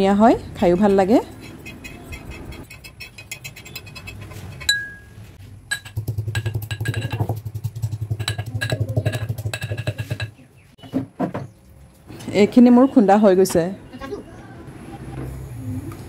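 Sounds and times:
spoon scraping and tapping: 0:00.4 - 0:05.1, 0:05.7 - 0:10.4
ringing metal clink: 0:01.6 - 0:05.9
metal pestle pounding in mortar: 0:05.7 - 0:10.3.

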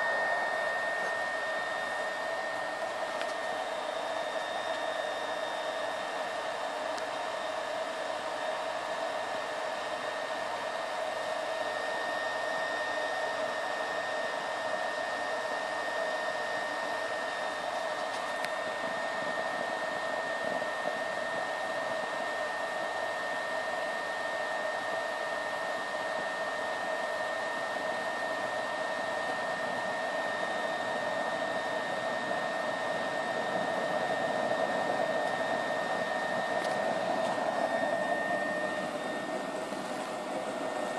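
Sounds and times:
stove fan whine: 0:00.0 - 0:40.9.

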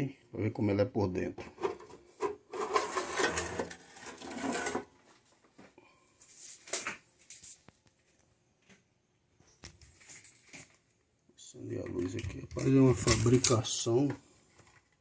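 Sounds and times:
sheet metal scraping rattle: 0:01.6 - 0:04.9.

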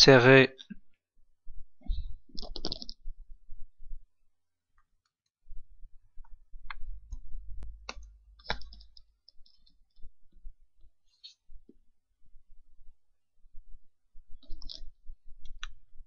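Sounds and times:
computer mouse clicks: 0:02.3 - 0:03.0, 0:07.8 - 0:09.8, 0:14.4 - 0:15.8.

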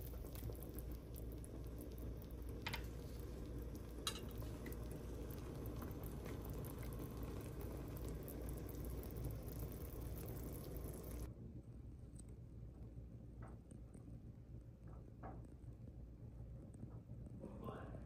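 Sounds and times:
soup bubbling in pot: 0:00.0 - 0:11.3.

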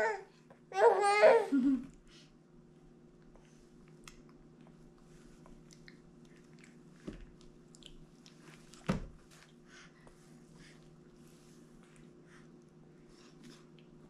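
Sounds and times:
baby chewing wet smacks: 0:03.2 - 0:09.6.

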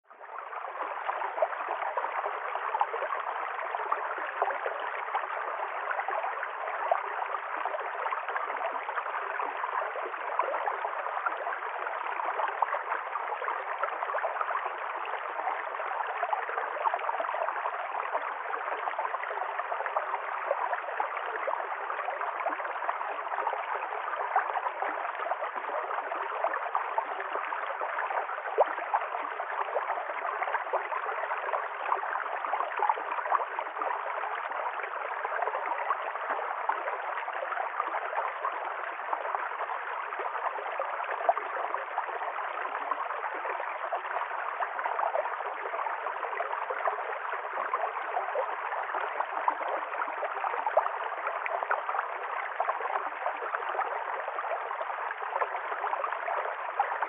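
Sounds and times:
stream flowing over rocks: 0:00.1 - 0:57.0.

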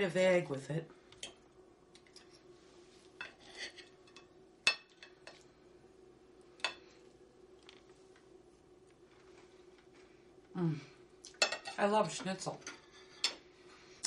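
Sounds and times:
knife and fork scraping on plate: 0:03.2 - 0:04.3, 0:12.6 - 0:13.4.

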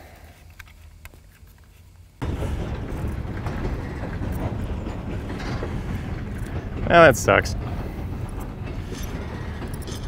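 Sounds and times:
freight train rumbling: 0:02.2 - 0:10.0
train cars knocking: 0:02.2 - 0:10.0.

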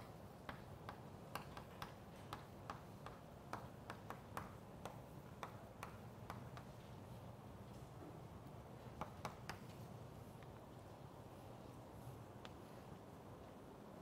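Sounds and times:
chalk tapping on chalkboard: 0:00.4 - 0:06.9, 0:08.9 - 0:09.8.

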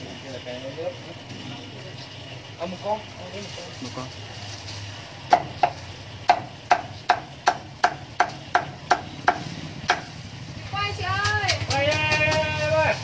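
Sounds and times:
cleaver chopping on wooden block: 0:05.3 - 0:10.1.

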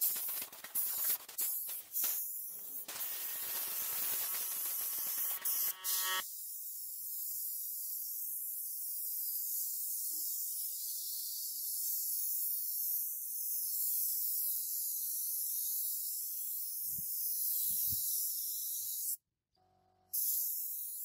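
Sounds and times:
paint spray gun hissing: 0:00.0 - 0:08.1.

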